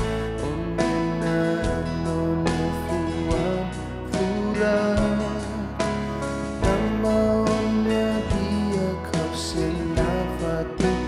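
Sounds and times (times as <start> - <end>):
instrumental accompaniment: 0.0 - 11.0
man singing worship song: 0.0 - 11.0.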